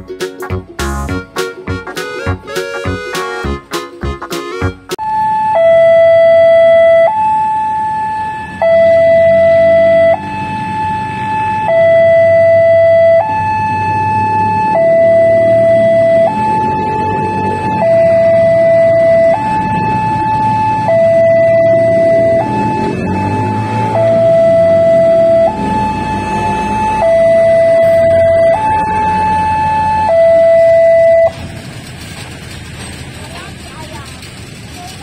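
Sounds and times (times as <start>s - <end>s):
two-tone crossing alarm: 4.6s - 31.5s
diesel train passing slowly: 8.0s - 35.0s.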